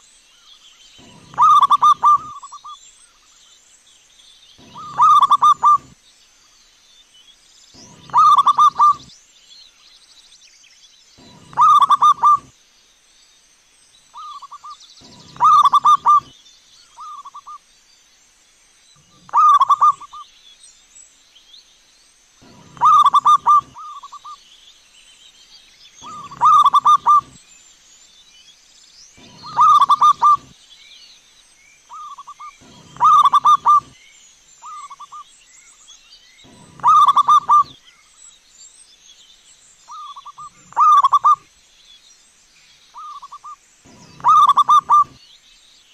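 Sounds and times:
dove cooing: 1.0s - 2.8s, 4.6s - 6.0s, 7.8s - 9.1s, 11.2s - 12.5s, 14.2s - 16.3s, 19.1s - 20.2s, 22.4s - 24.4s, 26.0s - 27.4s, 29.2s - 30.5s, 31.9s - 34.0s, 36.5s - 37.8s, 39.9s - 41.4s, 43.0s - 45.2s.

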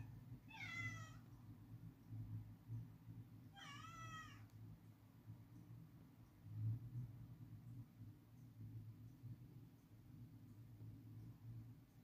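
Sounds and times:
faint cat meows: 0.0s - 1.3s, 3.5s - 4.5s.

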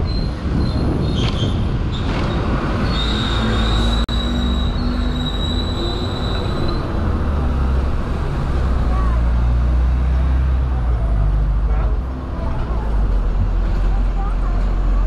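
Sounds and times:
high-pitched wheel squeal: 0.0s - 7.0s
tram rumbling on rails: 0.0s - 15.0s.

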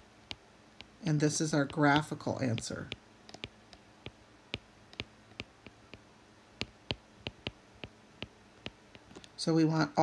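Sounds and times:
stylus tapping on glass screen: 1.6s - 6.0s, 6.6s - 9.3s.

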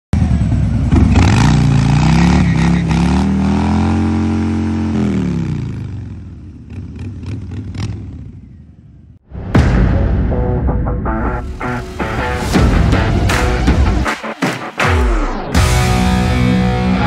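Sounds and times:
motorcycle engine revving: 0.2s - 9.1s.

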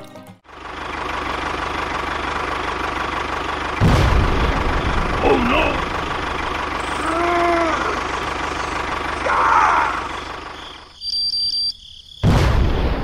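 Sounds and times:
tractor engine running: 0.4s - 11.0s
short pitched calls: 5.2s - 11.8s.

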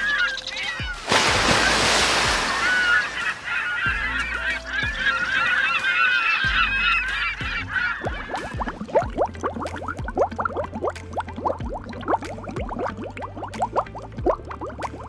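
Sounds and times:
birds honking: 0.0s - 9.2s
bubbling: 0.5s - 4.1s, 7.7s - 15.0s
rush of water: 0.6s - 4.7s.

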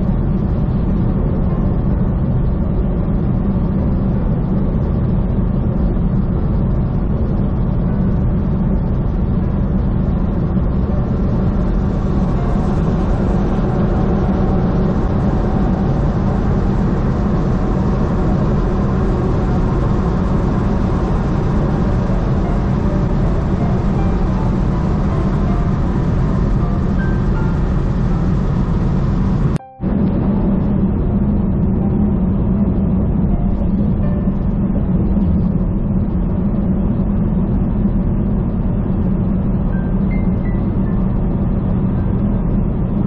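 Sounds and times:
truck engine and road drone: 0.0s - 43.0s.

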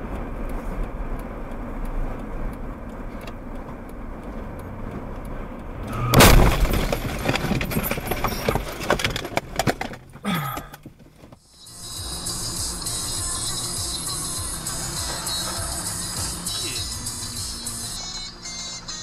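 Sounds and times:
road noise inside car: 0.0s - 19.0s
car crash: 5.9s - 11.0s
debris clattering and crunching: 6.0s - 11.1s.

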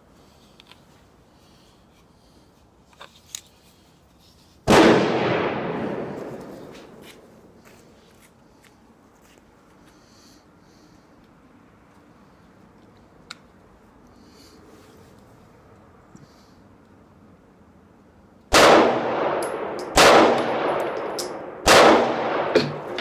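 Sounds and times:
loud echoing gunshot: 4.7s - 6.5s, 18.5s - 23.0s.

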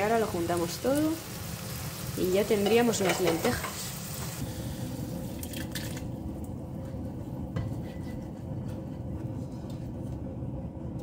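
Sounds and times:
spatula scraping a frying pan: 7.6s - 9.6s.

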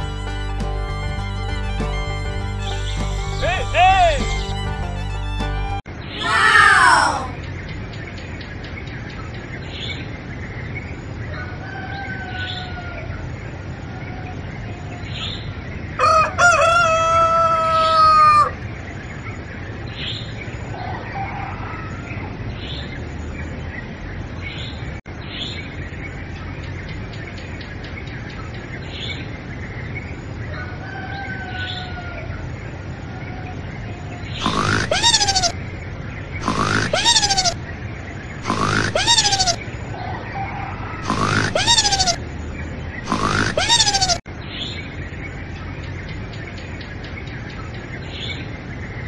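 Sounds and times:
small birds chirping: 0.0s - 11.4s, 31.4s - 49.0s
rooster crowing: 11.4s - 13.1s, 16.0s - 18.6s, 20.8s - 22.0s, 30.5s - 32.3s.

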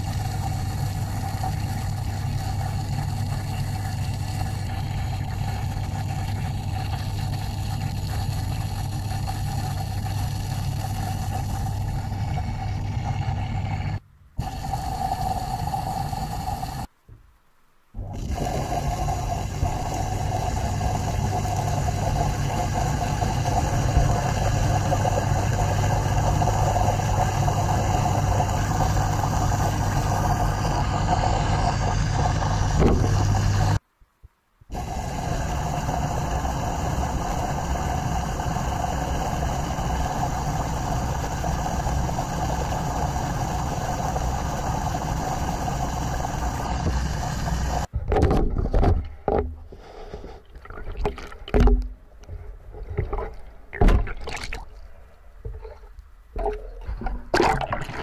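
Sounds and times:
pump motor hum: 0.0s - 16.9s, 18.0s - 33.8s, 34.7s - 47.9s, 56.4s - 58.0s
rushing water: 52.8s - 58.0s.

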